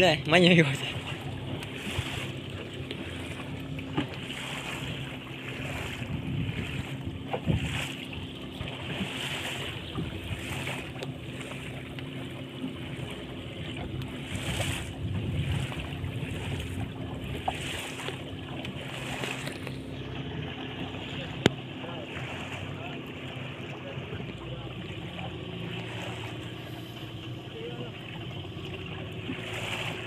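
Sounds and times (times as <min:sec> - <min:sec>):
boat engine humming: 0:00.0 - 0:30.0
water splashing along hull: 0:00.0 - 0:30.0
wind buffeting microphone: 0:04.6 - 0:11.0, 0:13.3 - 0:18.1.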